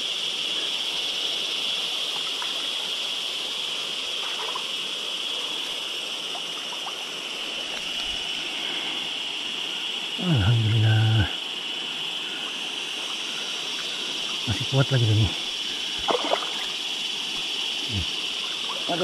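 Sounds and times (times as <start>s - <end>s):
river rushing over riffle: 15.3s - 19.0s.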